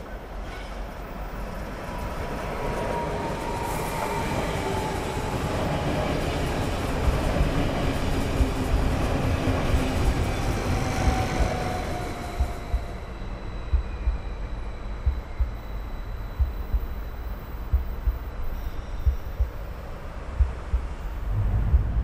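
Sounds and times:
electric train passing: 0.1s - 22.0s
faint falling whine: 21.0s - 22.0s.

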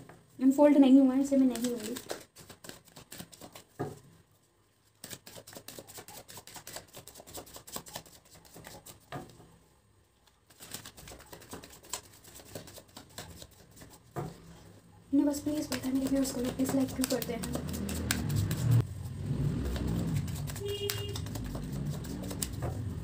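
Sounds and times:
paper slips rustling: 1.2s - 3.6s, 15.2s - 18.8s.

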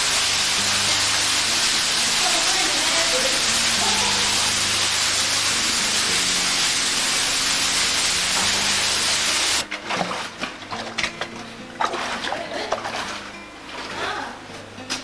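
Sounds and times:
waterfall spray hissing: 0.0s - 9.6s
water splashing and dripping: 0.0s - 14.3s.

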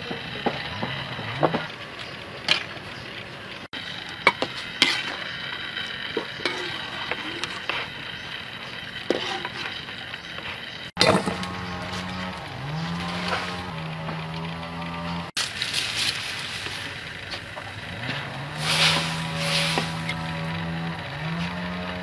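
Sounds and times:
steady hiss in pot: 3.8s - 10.9s, 18.5s - 20.5s.

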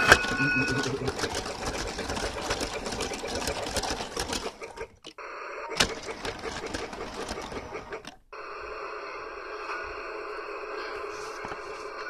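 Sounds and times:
toy train motor running: 0.0s - 5.0s, 5.7s - 12.0s
rapid clicking clatter: 0.0s - 5.1s, 5.8s - 8.2s.

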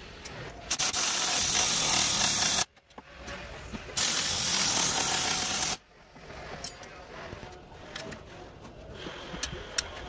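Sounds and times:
pneumatic impact wrench: 0.7s - 2.7s, 4.0s - 5.8s.

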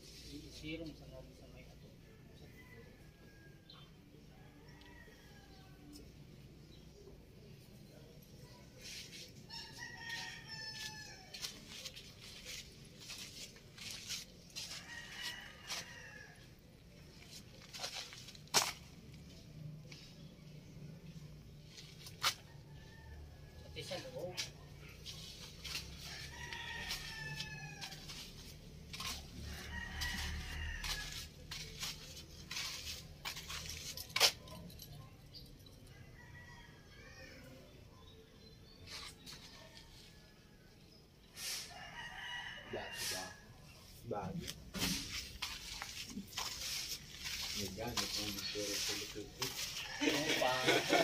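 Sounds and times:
rooster crowing: 9.5s - 11.5s, 14.6s - 16.5s, 26.0s - 28.3s, 28.9s - 31.6s, 41.6s - 43.5s, 49.6s - 51.0s.

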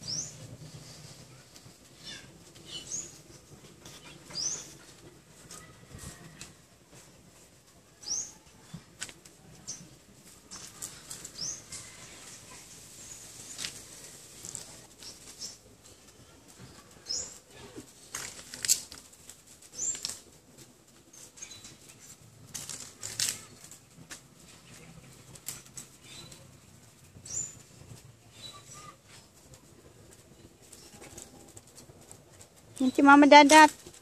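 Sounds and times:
bird chirps: 0.0s - 0.5s, 3.9s - 4.8s
dogs scuffing on sand and concrete: 0.0s - 34.0s.

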